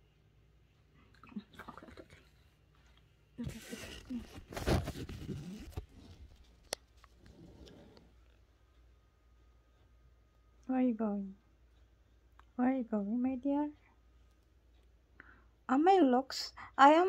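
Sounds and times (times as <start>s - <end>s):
phone and clothing rustling: 1.9s - 8.4s.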